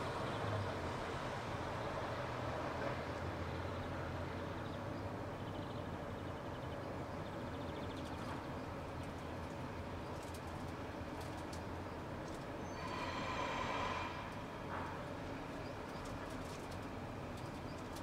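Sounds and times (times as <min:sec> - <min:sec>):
distant engine rumble: 0:12.5 - 0:16.4.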